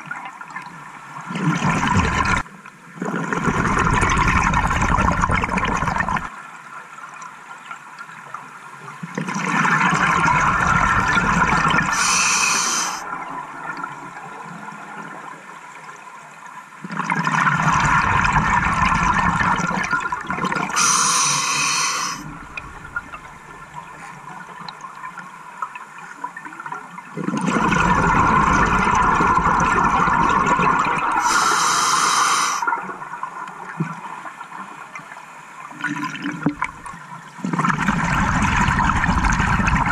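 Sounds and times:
water noise: 0:00.0 - 0:06.4, 0:09.0 - 0:39.9
bubbling and gurgling: 0:01.2 - 0:06.3, 0:09.0 - 0:15.2, 0:16.8 - 0:35.0, 0:35.7 - 0:39.9
diver breathing through regulator: 0:11.9 - 0:13.0, 0:20.8 - 0:22.3, 0:31.2 - 0:32.7.

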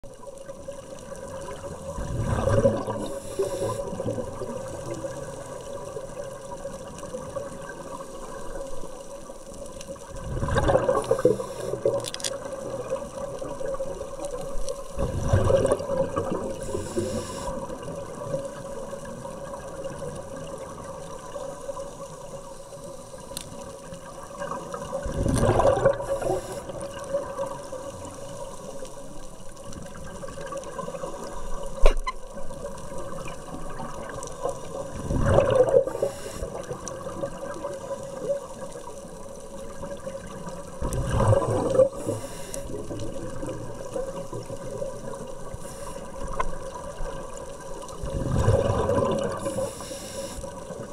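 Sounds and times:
steady underwater hum: 0:00.0 - 0:50.9
air bubbles rushing: 0:01.1 - 0:06.4, 0:10.0 - 0:18.3, 0:24.2 - 0:28.2, 0:29.9 - 0:38.8, 0:39.8 - 0:45.5, 0:46.2 - 0:49.7
regulator breathing underwater: 0:02.0 - 0:04.2, 0:10.6 - 0:12.0, 0:16.4 - 0:17.7, 0:25.9 - 0:27.0, 0:35.0 - 0:36.8, 0:41.4 - 0:43.0, 0:45.5 - 0:46.3, 0:49.1 - 0:50.6.

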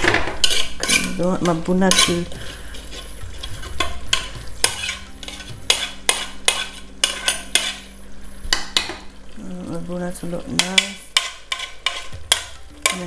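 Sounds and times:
metal spoon stirring in a pot: 0:00.0 - 0:07.9, 0:10.5 - 0:13.0.

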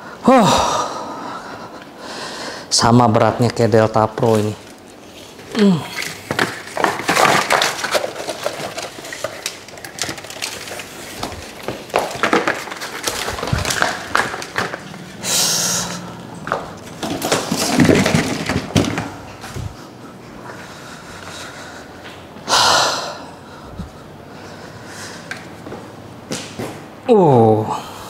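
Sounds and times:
cardboard boxes being handled: 0:06.0 - 0:15.2.

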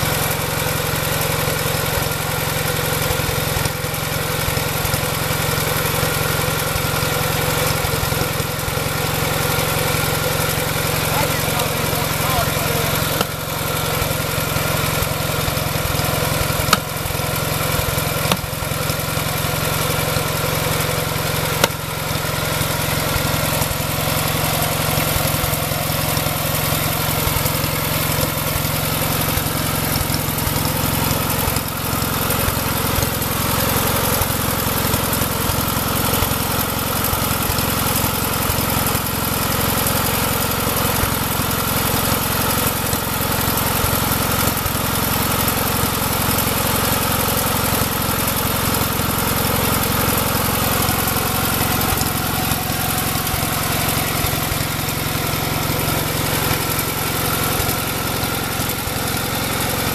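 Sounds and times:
tractor engine idling: 0:00.0 - 0:59.9
sharp knocks: 0:18.3 - 0:18.5.

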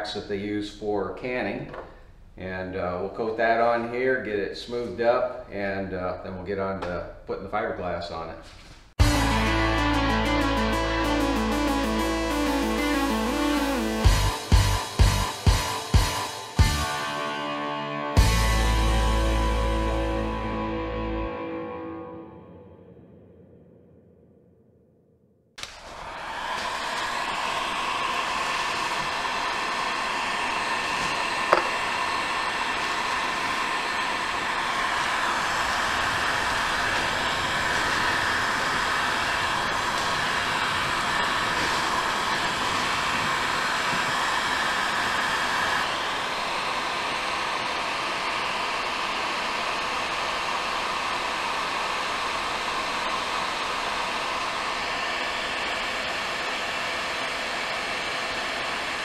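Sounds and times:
heat gun blowing: 0:25.6 - 0:59.0
sharp tap: 0:31.5 - 0:31.8.

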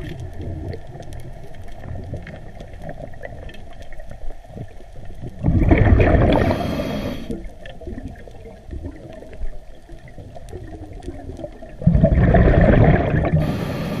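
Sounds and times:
faint clicking: 0:00.0 - 0:05.5, 0:07.2 - 0:11.8
air bubbles gurgling underwater: 0:00.0 - 0:14.0.

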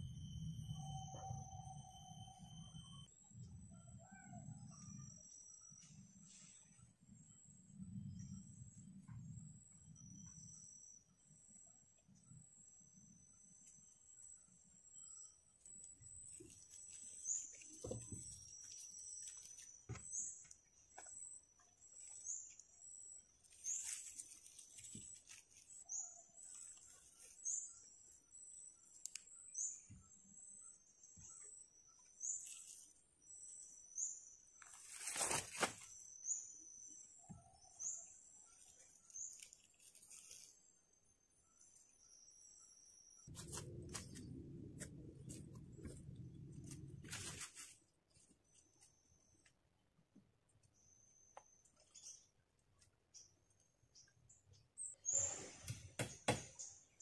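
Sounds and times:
rustle: 0:23.4 - 0:27.6, 0:34.6 - 0:36.0, 0:38.6 - 0:40.6, 0:46.6 - 0:48.3.

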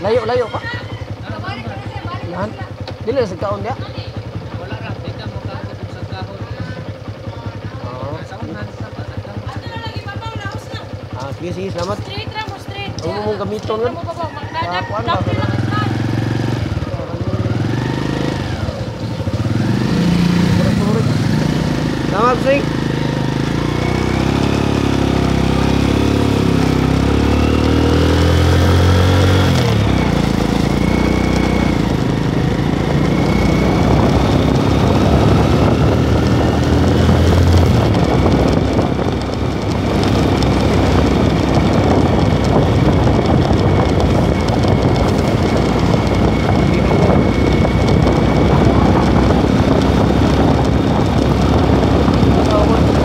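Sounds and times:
motorcycle engine accelerating: 0:00.0 - 0:53.0
wind rushing over microphone: 0:15.1 - 0:53.0.

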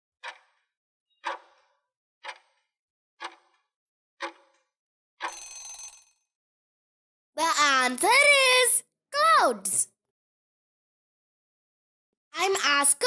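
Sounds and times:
clock ticking: 0:00.2 - 0:00.6, 0:01.2 - 0:03.6, 0:04.2 - 0:04.6.

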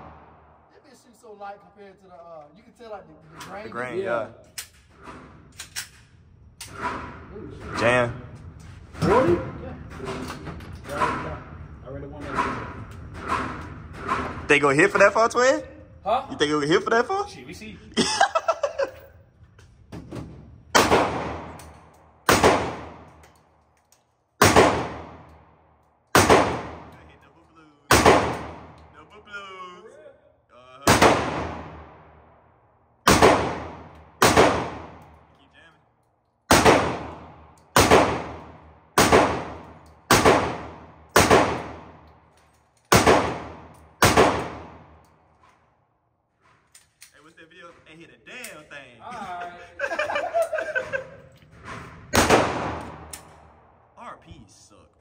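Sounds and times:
rifle shots with echo: 0:20.7 - 0:21.6, 0:22.2 - 0:23.1, 0:24.4 - 0:25.5, 0:26.1 - 0:26.9, 0:27.9 - 0:28.8, 0:30.8 - 0:32.3, 0:33.0 - 0:35.0, 0:36.5 - 0:42.0, 0:42.9 - 0:45.0, 0:52.1 - 0:53.8.

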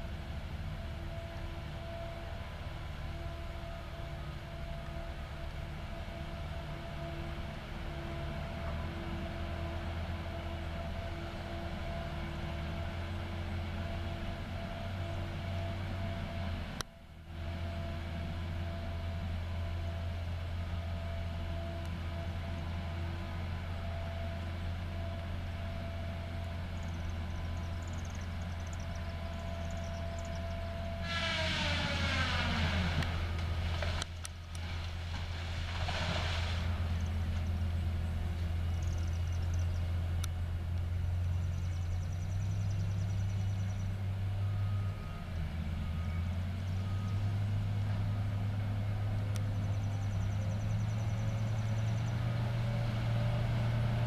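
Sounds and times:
heavy machine running: 0:00.0 - 0:39.1.

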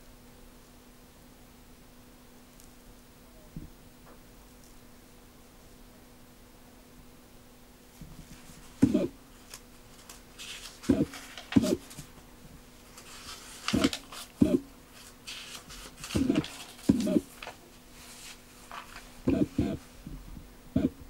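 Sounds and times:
faint steady hum: 0:00.0 - 0:21.0
paper pages turning: 0:08.3 - 0:12.2, 0:12.8 - 0:19.8
short pitched sounds: 0:19.3 - 0:19.8.

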